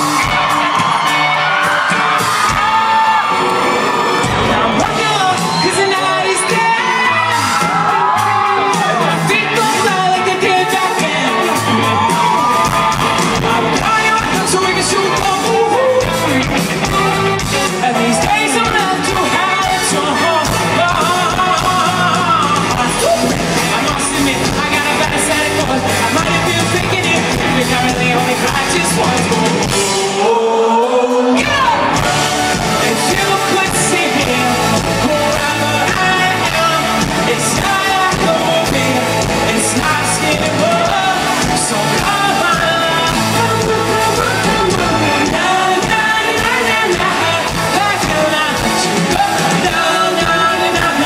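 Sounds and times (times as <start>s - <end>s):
crowd yelling and whooping: 0.0s - 51.0s
live pop band with vocals: 0.0s - 51.0s.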